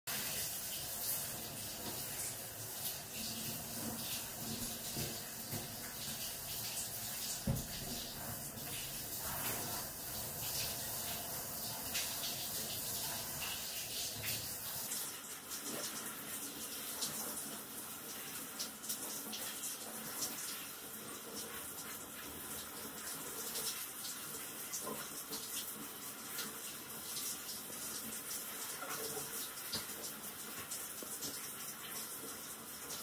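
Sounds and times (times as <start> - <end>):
shower spray rinsing dog: 0.1 - 33.0
water splashing on glass screen: 0.4 - 11.2.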